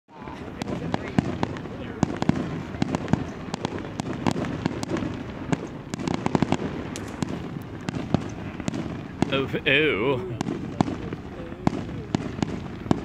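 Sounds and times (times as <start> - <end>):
fireworks bangs and crackles: 0.1 - 13.0.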